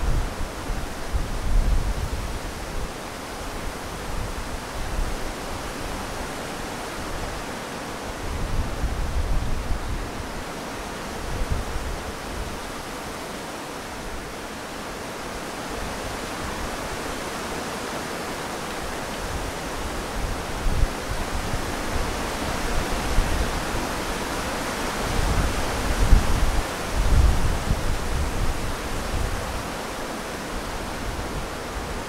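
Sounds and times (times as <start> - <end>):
wind buffeting microphone: 0.0 - 7.4, 8.0 - 10.5, 11.1 - 12.9, 18.8 - 29.9
wind rustling leaves: 0.0 - 32.0.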